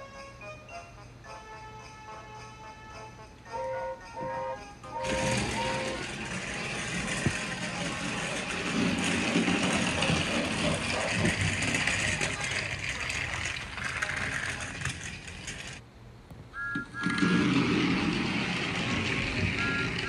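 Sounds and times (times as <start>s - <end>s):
toy train motor running: 0.0s - 15.8s, 16.6s - 20.0s
short high beeps: 16.6s - 17.2s.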